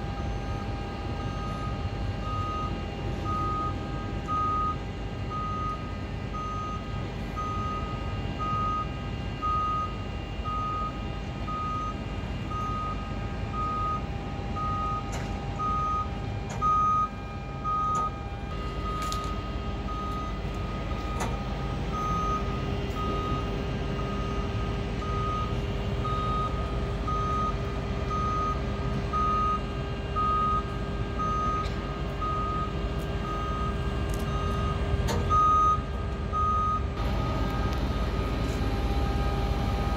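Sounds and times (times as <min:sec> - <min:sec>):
electric drive whine: 0:00.0 - 0:39.9
warning beeper: 0:29.2 - 0:39.9.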